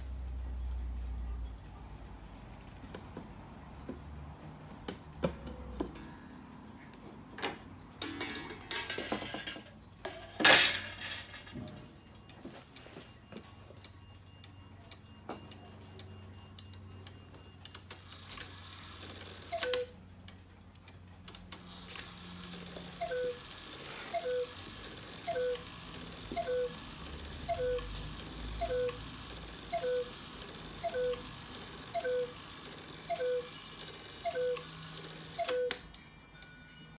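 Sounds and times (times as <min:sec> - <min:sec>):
cuckoo clock calling: 0:13.8 - 0:20.0, 0:21.7 - 0:36.6.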